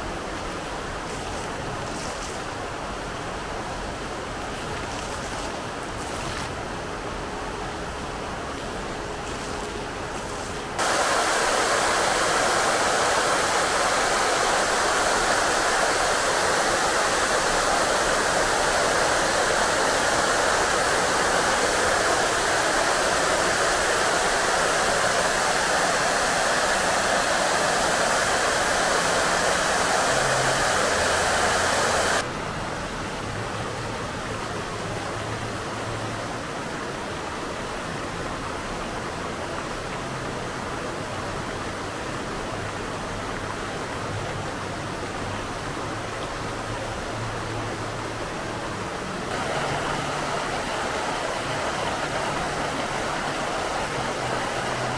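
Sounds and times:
fountain water rushing and splashing: 0:00.0 - 0:54.9.

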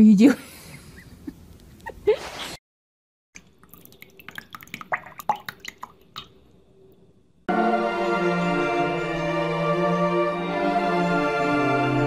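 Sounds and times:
water drips and small splashes: 0:03.4 - 0:06.6
music: 0:07.5 - 0:12.0.

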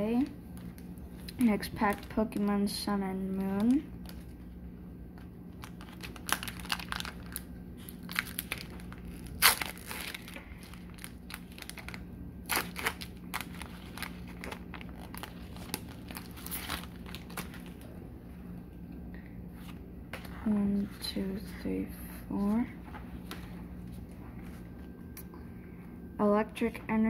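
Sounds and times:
foil wrapper tearing and crinkling: 0:01.2 - 0:02.5, 0:03.3 - 0:04.3, 0:05.5 - 0:17.9.

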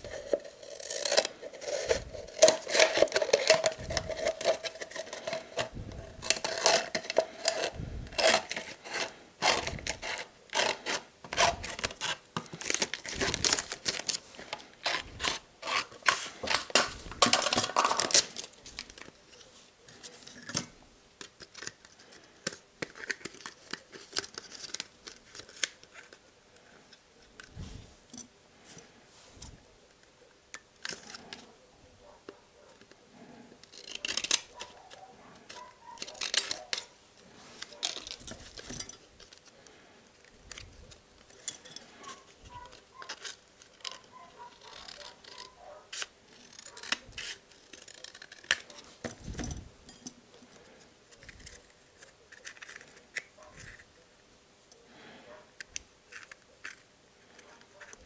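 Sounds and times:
plastic bottle crackling and snipping: 0:00.0 - 0:19.2.

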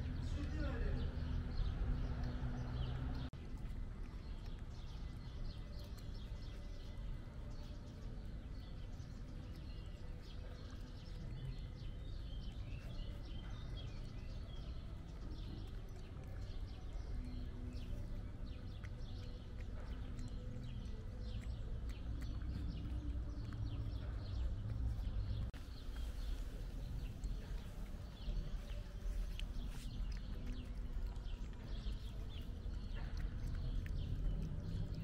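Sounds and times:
cat eating wet food: 0:00.0 - 0:35.0
small birds chirping: 0:00.0 - 0:35.0
steady low rumble: 0:19.5 - 0:35.0.

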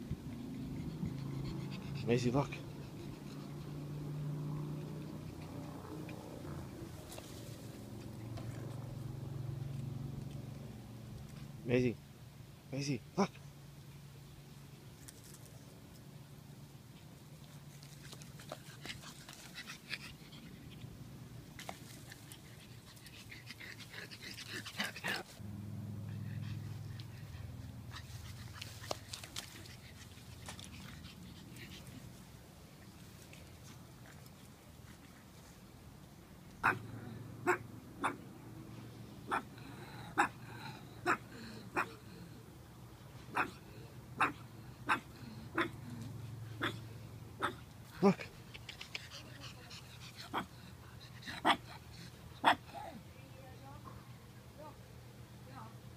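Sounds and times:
puppy panting: 0:00.0 - 0:07.4, 0:18.1 - 0:21.0, 0:21.9 - 0:25.4, 0:26.0 - 0:32.2, 0:43.4 - 0:52.7
puppy yapping: 0:36.6 - 0:38.2, 0:39.3 - 0:39.5, 0:41.0 - 0:41.2, 0:43.3 - 0:43.6, 0:44.2 - 0:45.8.

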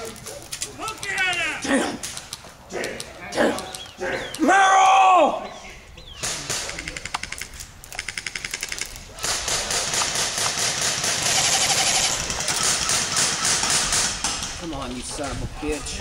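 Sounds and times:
airsoft rifle rapid fire: 0:08.0 - 0:14.7.

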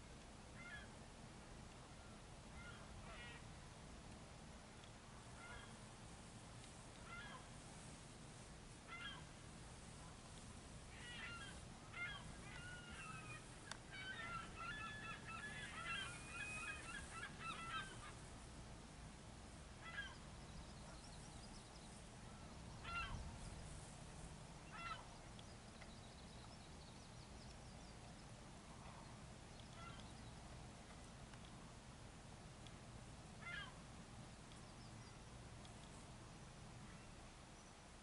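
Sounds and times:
faint geese honking: 0:00.5 - 0:01.0, 0:01.8 - 0:03.6, 0:05.2 - 0:05.9, 0:06.9 - 0:18.5, 0:19.8 - 0:23.9, 0:24.6 - 0:25.4, 0:28.6 - 0:30.4, 0:33.4 - 0:33.8.

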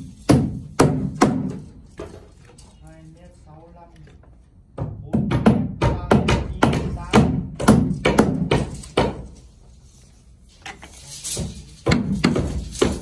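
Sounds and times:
hammer driving nails into wood: 0:05.2 - 0:09.4.

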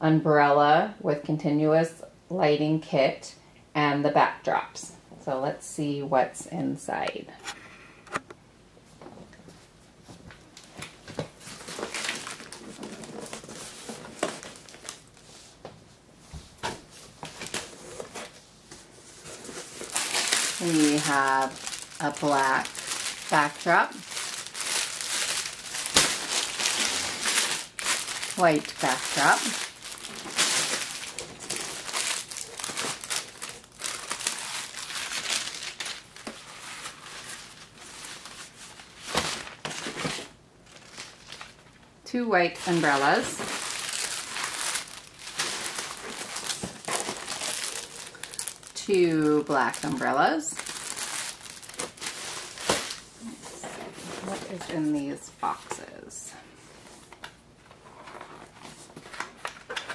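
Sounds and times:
plastic wrapping crinkling: 0:10.5 - 0:15.4, 0:19.0 - 0:41.8, 0:42.6 - 0:55.8
cardboard rustling and scraping: 0:11.2 - 0:15.5, 0:16.6 - 0:23.4, 0:50.7 - 0:54.8, 0:56.7 - 0:59.9.

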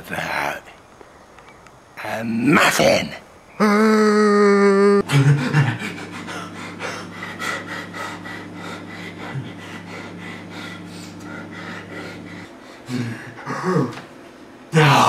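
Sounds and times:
steady low hum: 0:00.0 - 0:15.0
man panting: 0:05.3 - 0:13.9.

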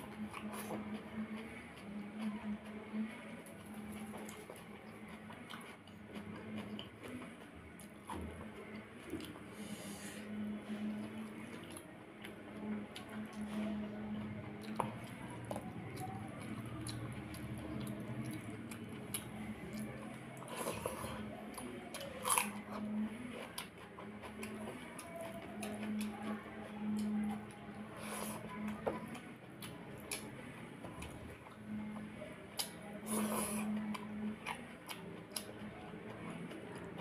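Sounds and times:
chewing and crunching: 0:00.0 - 0:09.8, 0:10.6 - 0:37.0
faint low hum: 0:00.0 - 0:37.0.

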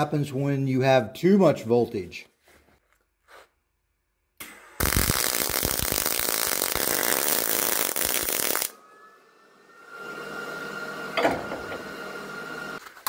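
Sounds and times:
welder arc crackling hiss: 0:04.8 - 0:08.7.

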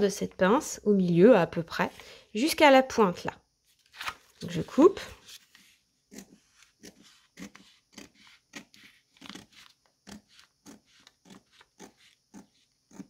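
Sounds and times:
scissors snipping paper: 0:06.1 - 0:13.0.

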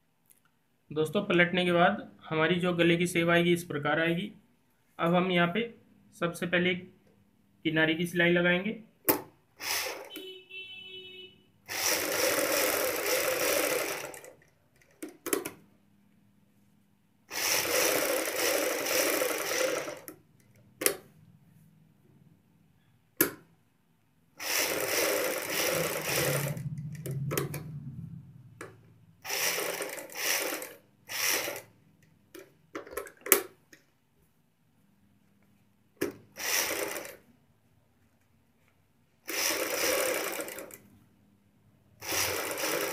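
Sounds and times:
sewing machine stitching: 0:09.6 - 0:10.3, 0:11.7 - 0:15.6, 0:17.3 - 0:20.2, 0:24.4 - 0:27.8, 0:28.6 - 0:31.8, 0:36.0 - 0:37.3, 0:39.2 - 0:40.9, 0:42.0 - 0:42.9.

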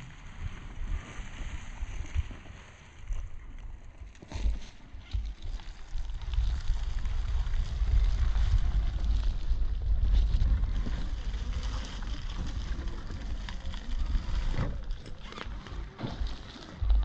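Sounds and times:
faint clicks and rustles: 0:00.4 - 0:17.0
wind buffeting microphone: 0:05.1 - 0:17.0.

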